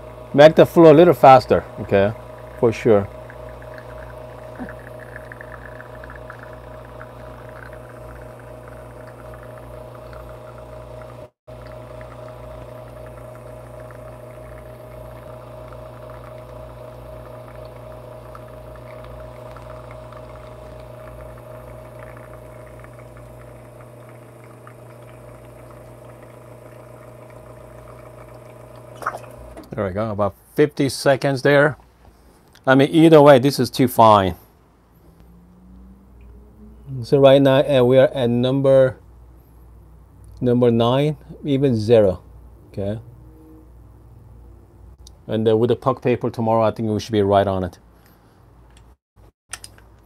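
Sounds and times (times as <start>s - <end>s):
espresso machine pump humming: 0.0s - 29.7s.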